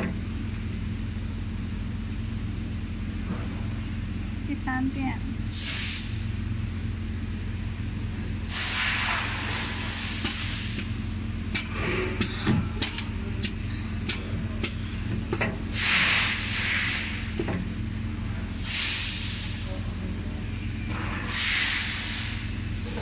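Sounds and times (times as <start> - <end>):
low machine hum: 0.0 - 23.0
compressed air hiss: 5.5 - 6.2, 8.4 - 11.0, 15.7 - 17.4, 18.5 - 19.9, 21.0 - 23.0.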